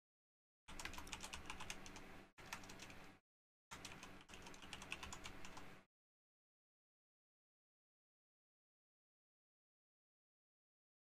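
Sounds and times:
computer keyboard typing: 0:00.7 - 0:05.8.

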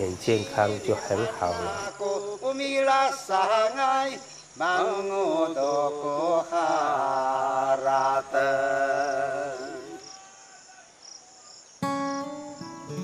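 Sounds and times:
crickets chirping: 0:00.0 - 0:13.0
man singing slow tune: 0:00.6 - 0:10.3.

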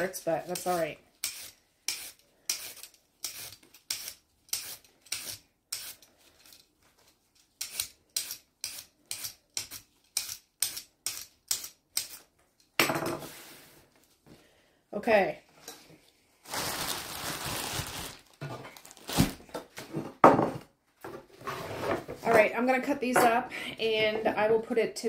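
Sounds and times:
peeler scraping carrots: 0:00.4 - 0:06.6, 0:07.5 - 0:12.2.

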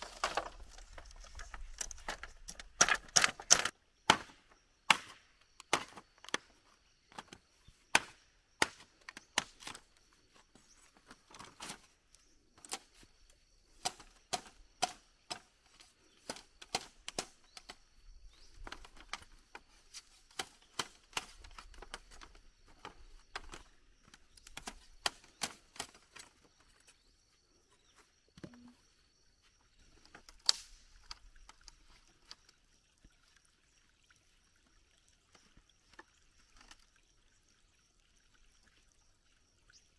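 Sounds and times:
blade chopping bamboo: 0:02.8 - 0:06.0, 0:07.9 - 0:09.8, 0:13.8 - 0:15.5, 0:16.2 - 0:17.8, 0:20.3 - 0:21.5.

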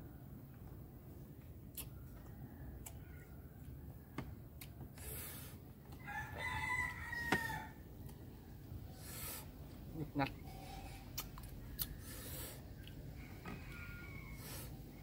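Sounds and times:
rooster crowing: 0:06.0 - 0:07.9, 0:13.1 - 0:14.8.

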